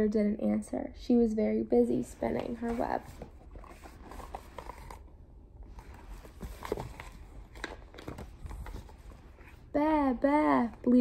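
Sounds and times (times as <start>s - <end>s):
book pages rustling: 2.2s - 9.7s.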